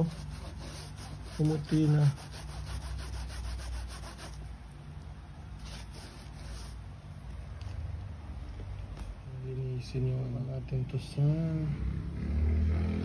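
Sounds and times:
wipe scrubbing rubber sole: 0:00.0 - 0:04.4, 0:05.6 - 0:06.8.

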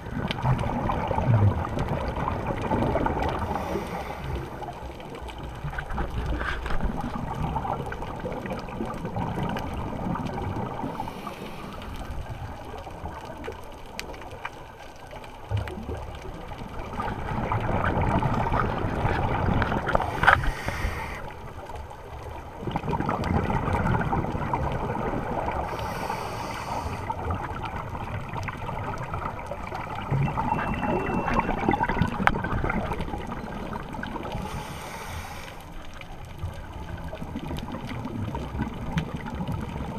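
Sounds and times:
gurgling exhaled bubbles underwater: 0:00.0 - 0:39.9
scuba regulator hissing: 0:20.4 - 0:21.2.

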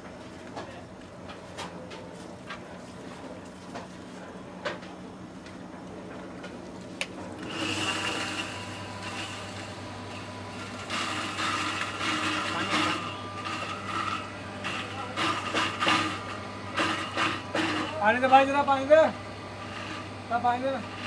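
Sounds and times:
electric mill motor hum: 0:07.0 - 0:21.0
rough grinding noise: 0:07.4 - 0:21.0.

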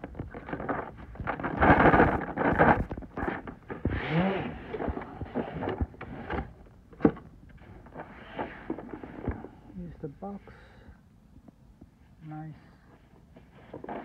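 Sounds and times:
cardboard rustling and scraping: 0:00.0 - 0:09.6, 0:13.0 - 0:14.0.

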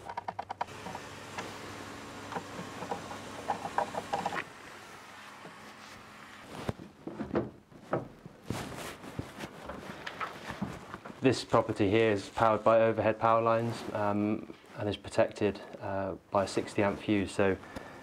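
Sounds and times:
handling knocks and rustles: 0:05.4 - 0:12.4.

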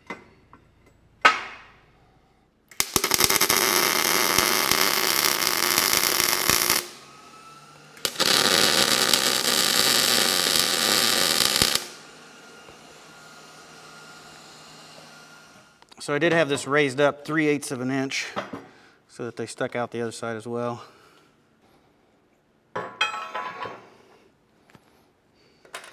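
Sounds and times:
welder arc crackling and hissing: 0:02.7 - 0:16.1.

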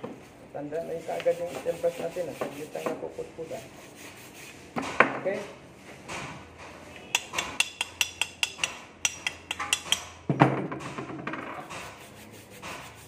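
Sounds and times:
chipping hammer tapping metal: 0:07.2 - 0:10.1.

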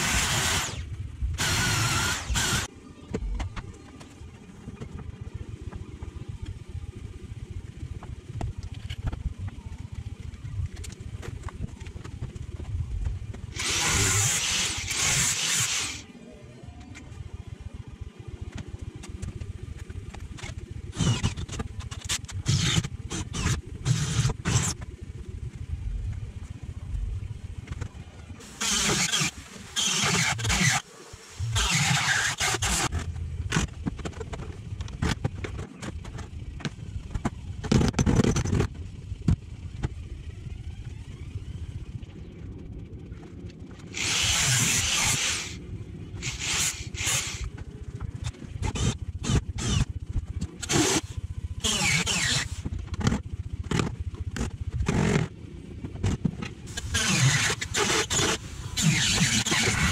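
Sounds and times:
power drill boring into steel: 0:01.4 - 0:02.7, 0:13.6 - 0:16.0, 0:28.5 - 0:30.8, 0:31.5 - 0:32.9, 0:44.0 - 0:45.6, 0:46.2 - 0:47.5, 0:51.6 - 0:52.6, 0:56.8 - 0:59.9.

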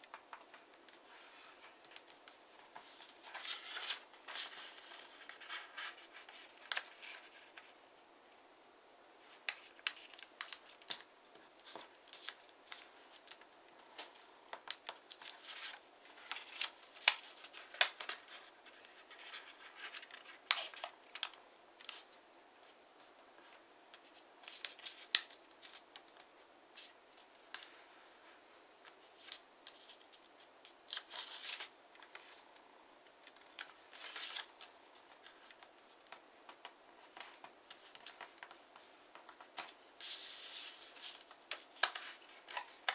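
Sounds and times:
paper being folded and creased: 0:00.0 - 0:07.7, 0:09.3 - 0:22.1, 0:33.2 - 0:42.9.

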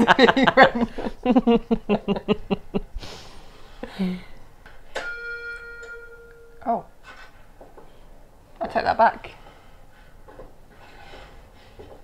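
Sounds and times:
women laughing: 0:00.0 - 0:03.0
steady held tone: 0:04.9 - 0:07.0.

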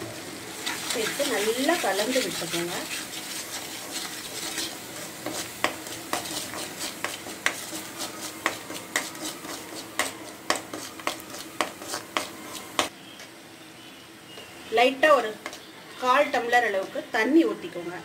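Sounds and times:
spices sizzling in hot oil: 0:00.0 - 0:17.9
spoon scraping and knocking pan: 0:00.6 - 0:12.9.

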